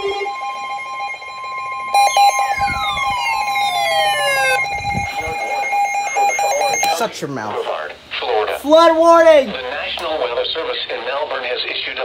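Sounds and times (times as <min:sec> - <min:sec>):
falling siren-like sweep: 0:00.0 - 0:07.0
rapidly pulsing beep: 0:00.0 - 0:07.1
steady alert tone: 0:00.0 - 0:07.1.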